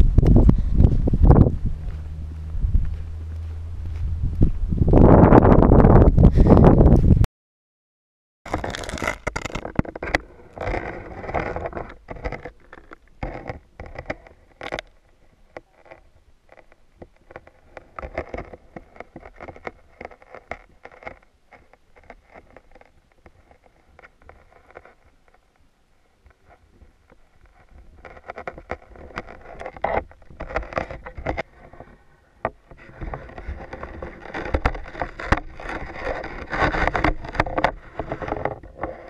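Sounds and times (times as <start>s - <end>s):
muffled underwater knocks and scraping: 26.2s - 39.0s.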